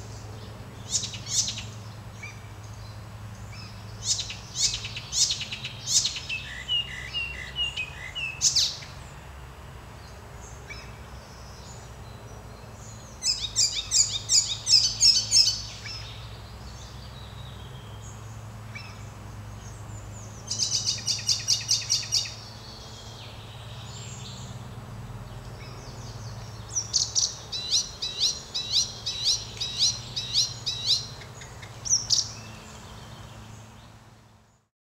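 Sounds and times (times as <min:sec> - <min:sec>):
warbler singing: 0:00.0 - 0:09.2, 0:10.0 - 0:34.7.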